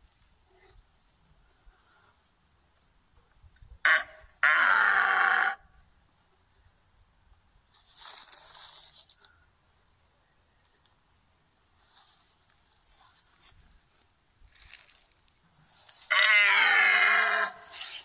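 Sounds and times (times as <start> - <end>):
deer barking: 3.8 - 5.6, 15.9 - 18.0.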